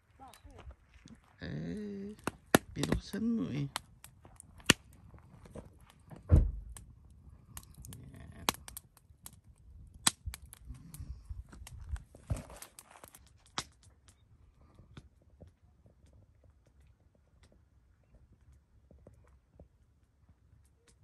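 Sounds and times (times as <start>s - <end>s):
footsteps on stony ground: 0.0s - 3.4s, 11.4s - 13.5s
campfire crackling and popping: 0.0s - 21.0s.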